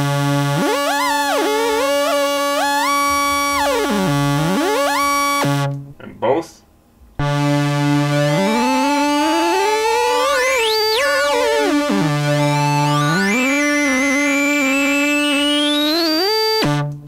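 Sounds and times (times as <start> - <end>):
buzzy synthesizer tone gliding: 0.0 - 5.7, 7.2 - 16.8
steady higher synth note: 7.2 - 16.8.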